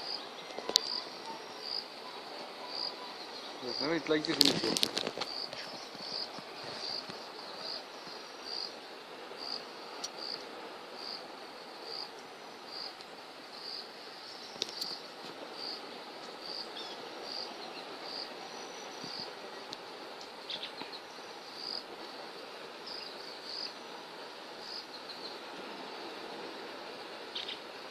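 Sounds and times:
insect chirping: 0.0 - 27.9
river rushing: 0.0 - 27.9.

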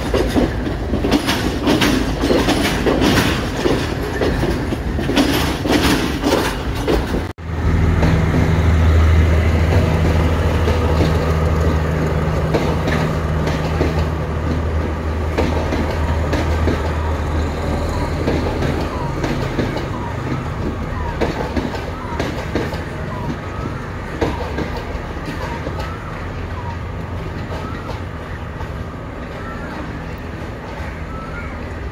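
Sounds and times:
train wheels clattering over joints: 0.0 - 31.2
diesel engine drone: 7.4 - 15.4.

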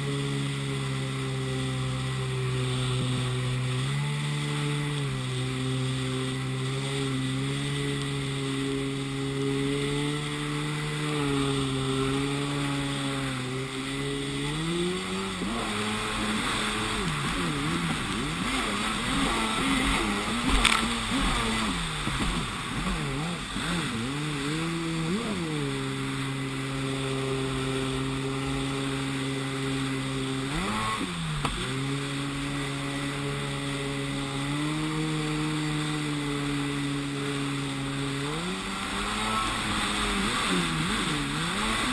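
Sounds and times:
jet ski engine running and revving: 0.0 - 41.9
water spray and wind hiss: 0.0 - 41.9.

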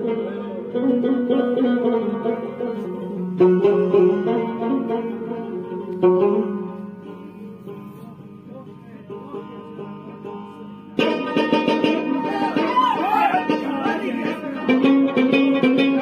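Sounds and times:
plucked string melody: 0.0 - 16.0.

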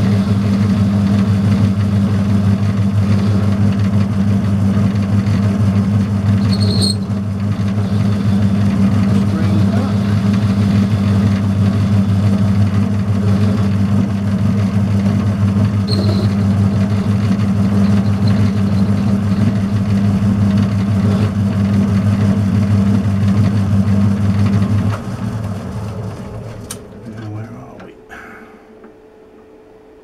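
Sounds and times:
lathe motor humming: 0.0 - 29.6.

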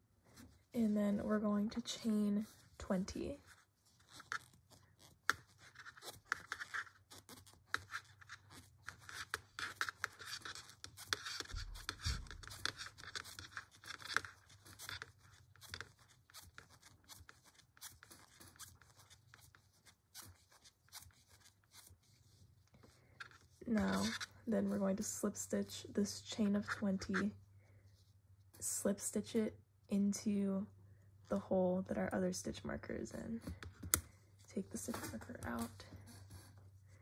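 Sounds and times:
crochet hook scratching and clicking: 3.5 - 22.2, 22.8 - 24.9.

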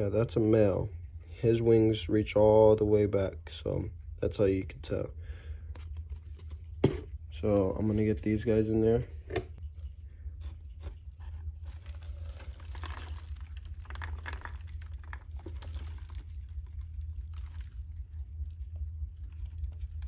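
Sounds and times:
steady low hum: 0.0 - 20.0
insects and substrate pattering: 11.6 - 20.0.

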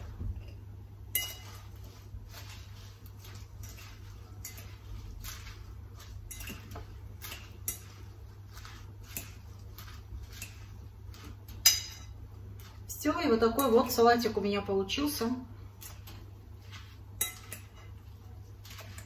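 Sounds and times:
fork tossing salad leaves: 0.0 - 19.0
fork clinking on glass: 1.1 - 1.6, 17.2 - 17.9.

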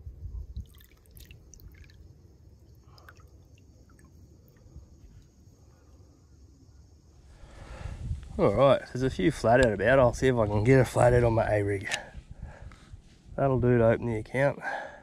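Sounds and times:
water dripping: 0.5 - 5.4.

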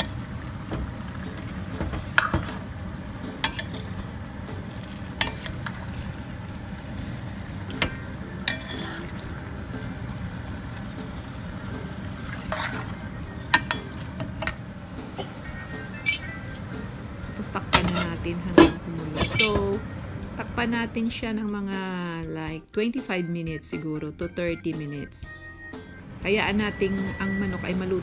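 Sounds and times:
chicken sizzling in a pan: 0.0 - 18.0
metal spoon clinking on pan: 3.4 - 3.8, 7.8 - 8.9, 13.5 - 14.6.

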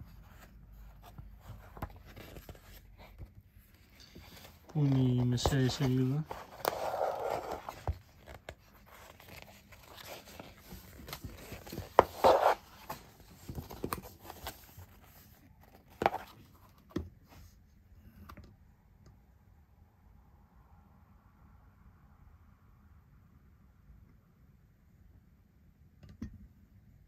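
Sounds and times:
magazine pages rustling: 0.0 - 16.8.

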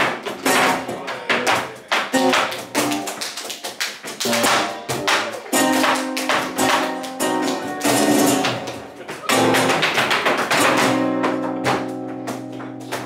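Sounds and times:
percussive taps: 0.0 - 13.0
guitars strumming accented chords: 4.3 - 9.8, 10.6 - 13.0.

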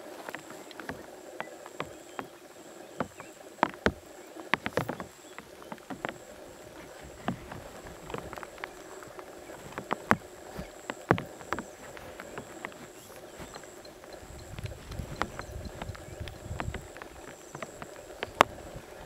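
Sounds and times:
high insect drone: 0.0 - 19.0.

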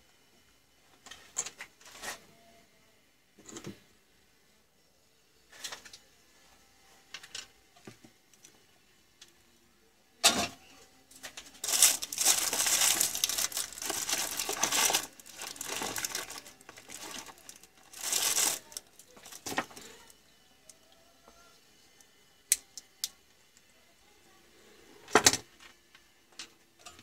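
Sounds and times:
rustling and crinkling: 11.2 - 20.1
hands rummaging among parts: 11.3 - 19.8.

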